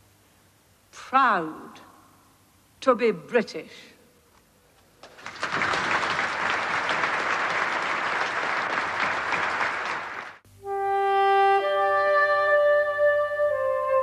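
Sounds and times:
large crowd applauding: 5.0 - 10.4.

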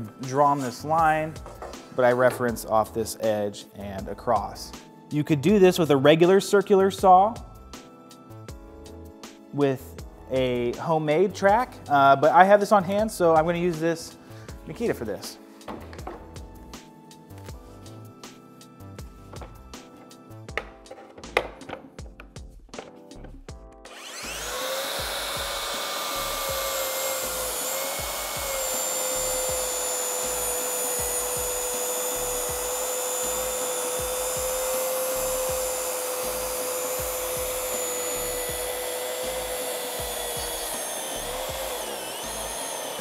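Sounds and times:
track saw whining through plywood: 23.9 - 43.0.

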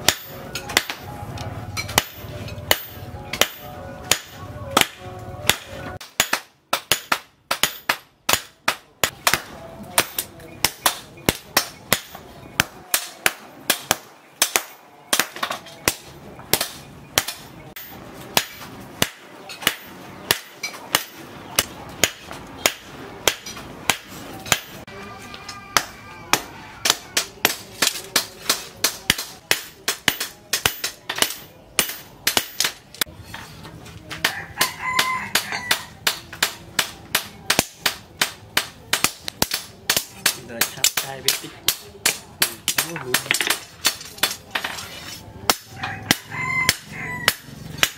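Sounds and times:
hammer striking metal on anvil: 0.0 - 1.1, 1.7 - 24.9, 25.7 - 32.8.

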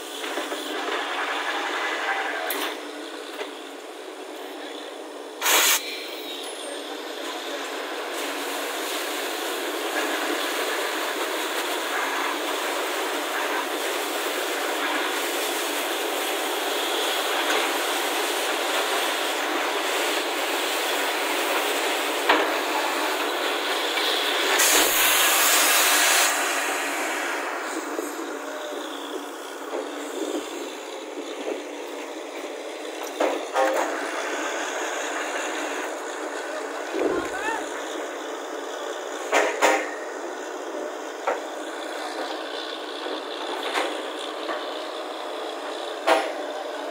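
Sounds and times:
compressed air blasting water: 5.4 - 5.9, 24.1 - 28.2
drilling rig running: 12.1 - 46.9.

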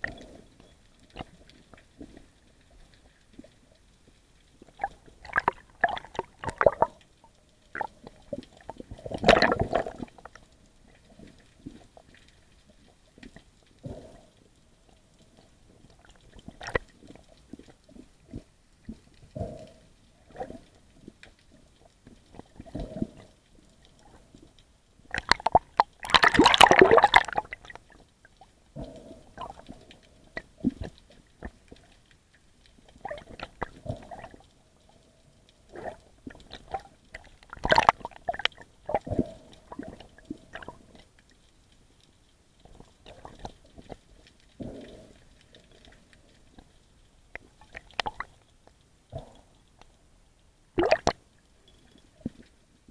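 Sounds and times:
underwater swishes and gurgles: 0.0 - 52.9
underwater water rushing: 4.6 - 7.0, 7.7 - 12.3, 25.0 - 28.0, 35.7 - 41.0, 50.8 - 51.2.

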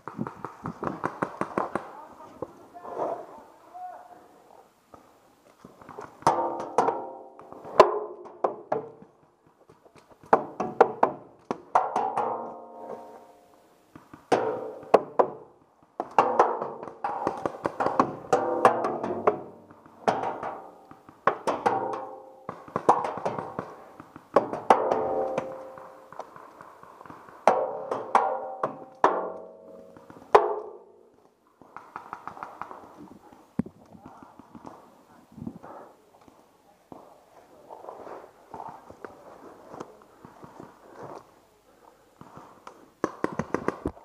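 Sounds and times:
paintballs hitting metal drums: 6.2 - 9.1, 10.2 - 13.2, 14.2 - 31.0.

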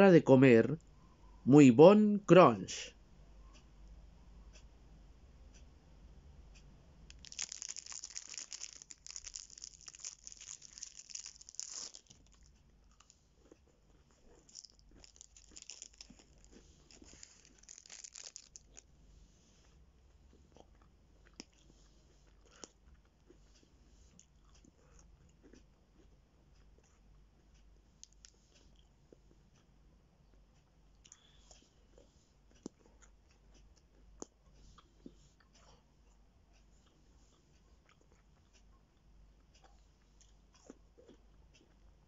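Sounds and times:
plastic wrapper tearing and crinkling: 7.1 - 12.5, 14.5 - 18.8
biting and chewing: 7.1 - 18.9, 20.5 - 29.3, 37.6 - 42.0
faint crunches: 7.1 - 18.9.

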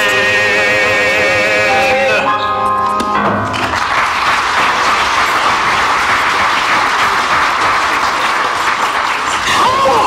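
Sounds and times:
audience applause: 3.4 - 10.0.

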